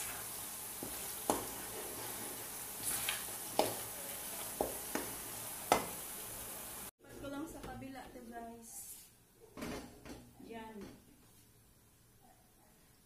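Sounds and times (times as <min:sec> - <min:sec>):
chili sizzling in oil: 0:00.0 - 0:06.9.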